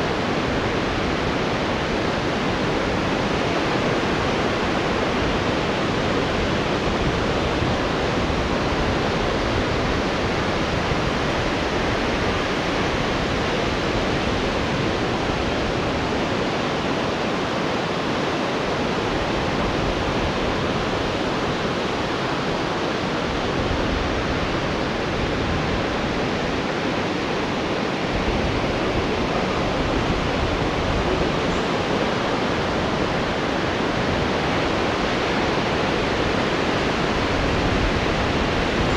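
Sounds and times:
strong wind: 0.0s - 38.9s.

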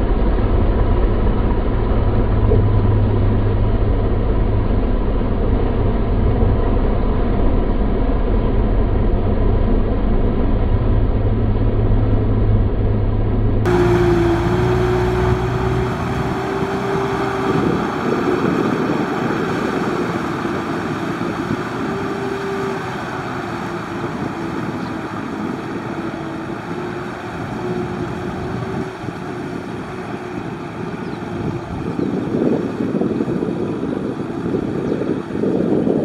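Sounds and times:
tractor engine droning: 13.7s - 36.0s.

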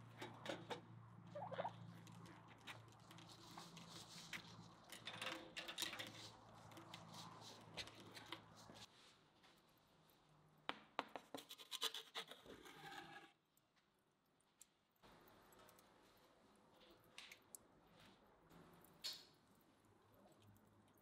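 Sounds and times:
scratches and clicks: 11.4s - 13.4s.

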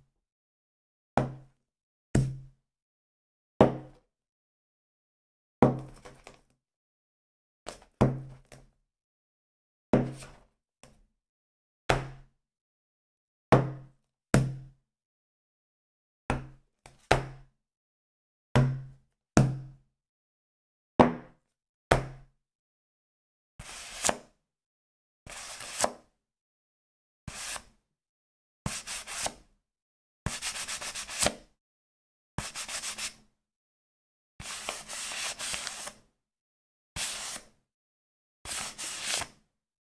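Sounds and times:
paper rubbing against book: 34.4s - 35.9s.

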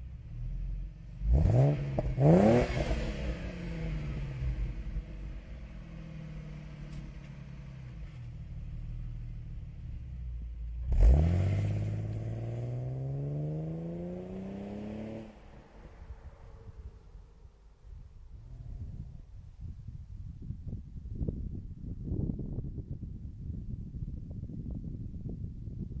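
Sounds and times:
car engine idling and revving: 0.0s - 19.2s
car accelerating away: 1.2s - 8.2s, 10.8s - 17.2s.

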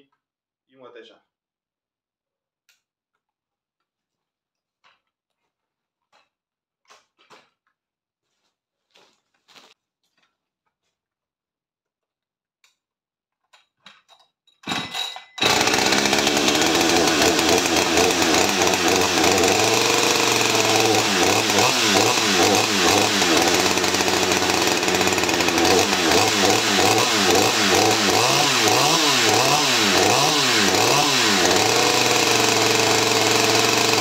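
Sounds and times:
chainsaw running: 14.7s - 34.0s.

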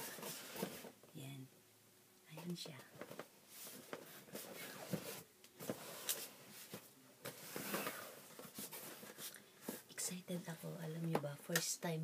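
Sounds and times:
cardboard rustling and scraping: 0.0s - 1.0s, 3.0s - 9.9s.

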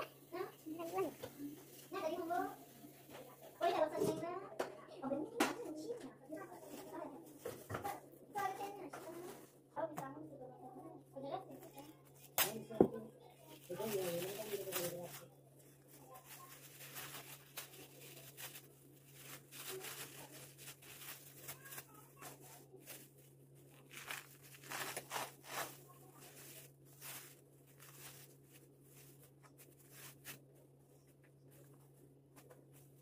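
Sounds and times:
plastic bags crinkling: 13.4s - 30.5s
flatbread tearing: 23.7s - 30.4s.

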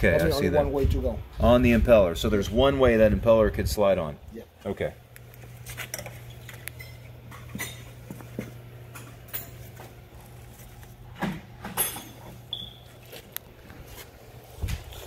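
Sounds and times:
steady low hum: 0.0s - 15.0s
metal clinks and knocks: 6.8s - 10.0s, 11.2s - 12.7s.

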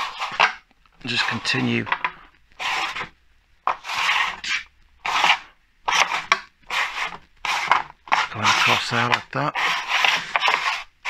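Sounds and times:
tool rasping along aluminium strip: 3.7s - 10.9s.

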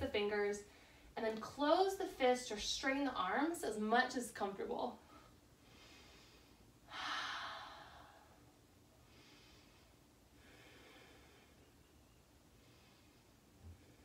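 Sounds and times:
woman breathing deeply: 5.1s - 11.8s.

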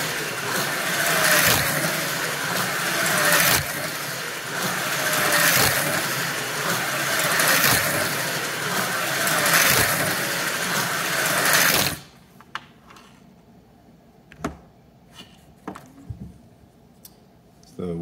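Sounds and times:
slot car electric motor whine: 0.0s - 12.2s.

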